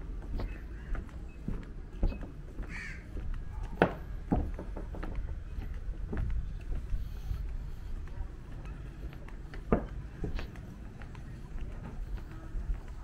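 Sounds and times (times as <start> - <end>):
sharp knocks: 3.7 - 5.4.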